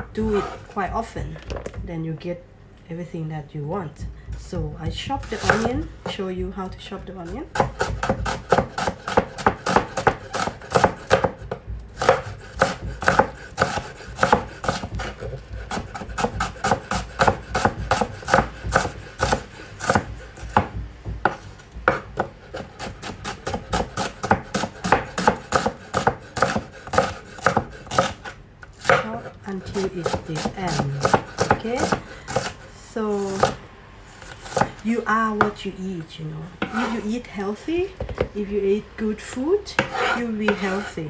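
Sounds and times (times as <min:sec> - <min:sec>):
knife strikes on wooden board: 0:07.6 - 0:28.2.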